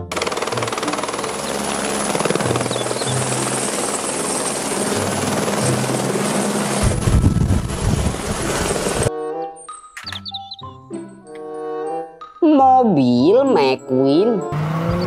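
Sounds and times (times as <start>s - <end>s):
helicopter rotor and engine: 0.0s - 9.1s.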